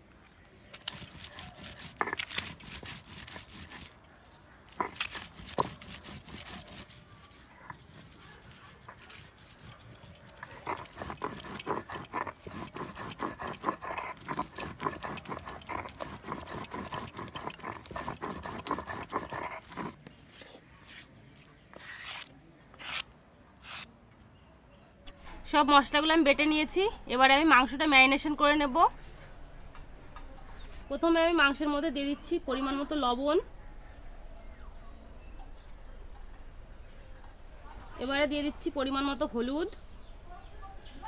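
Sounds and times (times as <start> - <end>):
stone grinding on stone: 0.8 - 3.9, 4.7 - 20.6.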